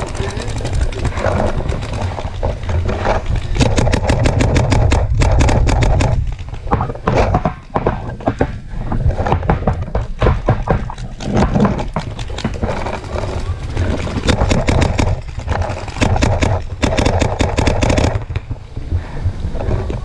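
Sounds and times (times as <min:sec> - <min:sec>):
paintball markers firing: 0:03.6 - 0:06.2, 0:14.2 - 0:18.3.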